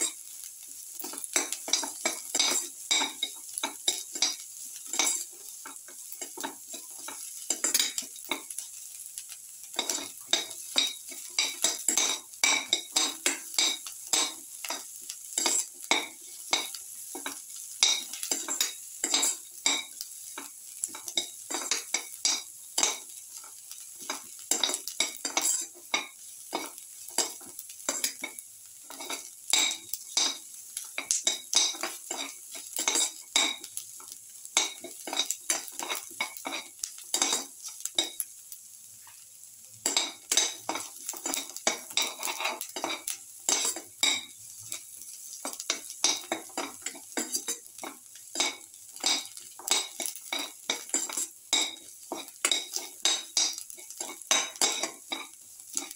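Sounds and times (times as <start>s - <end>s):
frying sizzle: 0.0s - 55.9s
metal utensil scraping a pan: 1.0s - 8.7s, 9.8s - 38.2s, 39.8s - 55.9s.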